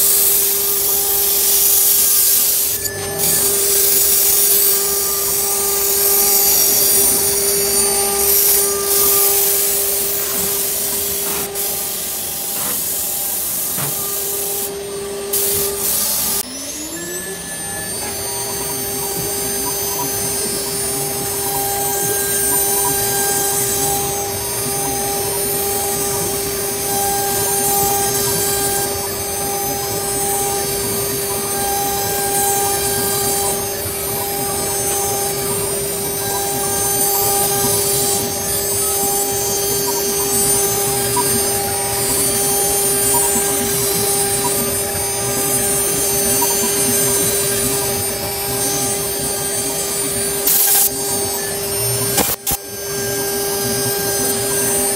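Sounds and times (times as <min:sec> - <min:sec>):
bit cutting foam hiss: 0:00.0 - 0:54.9
router spindle high whine: 0:00.0 - 0:54.9.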